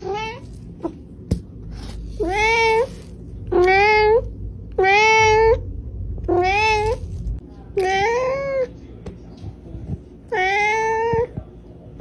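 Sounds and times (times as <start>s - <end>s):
cat meowing: 2.2s - 5.6s, 6.3s - 7.0s.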